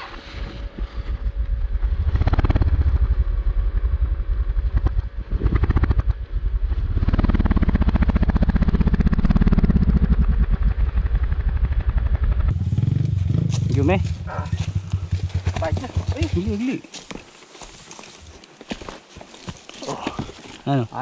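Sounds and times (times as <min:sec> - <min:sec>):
dirt bike climbing uphill: 0:00.0 - 0:21.0
dirt bike engine idling: 0:02.3 - 0:16.8.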